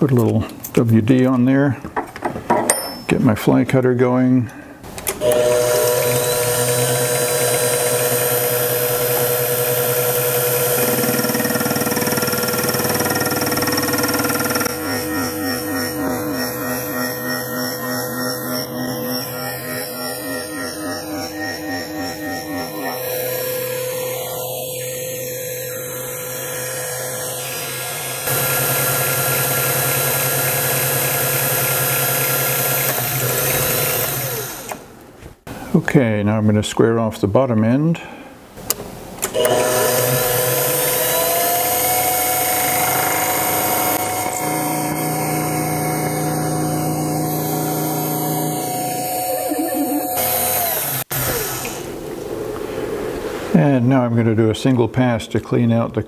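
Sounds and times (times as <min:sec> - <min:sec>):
mill motor whine: 0:04.9 - 0:34.9, 0:39.2 - 0:52.4
metal cutting noise: 0:05.1 - 0:34.9, 0:39.2 - 0:52.2.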